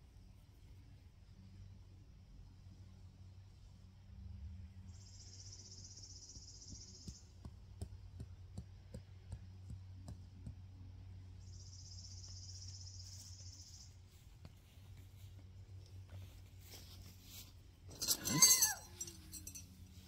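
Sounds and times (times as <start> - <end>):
light irregular taps: 6.7 - 10.8.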